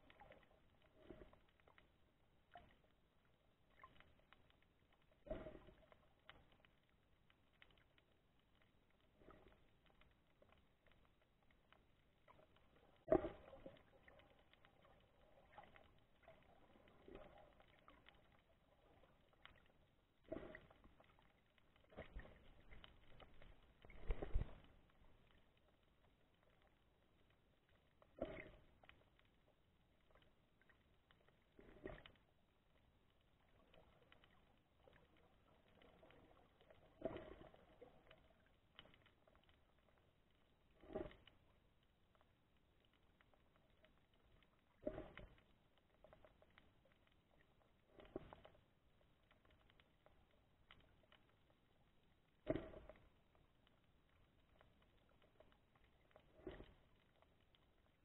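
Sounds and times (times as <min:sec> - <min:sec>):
soft underwater clicks and crackles: 0:00.0 - 0:58.0
low underwater hiss: 0:05.2 - 0:06.4, 0:44.7 - 0:45.4
swishes of moving water: 0:05.2 - 0:06.6, 0:12.3 - 0:25.4, 0:28.0 - 0:29.3, 0:33.4 - 0:39.6, 0:44.5 - 0:46.5, 0:52.4 - 0:53.2, 0:55.2 - 0:57.9
small clicks: 0:33.6 - 0:39.9.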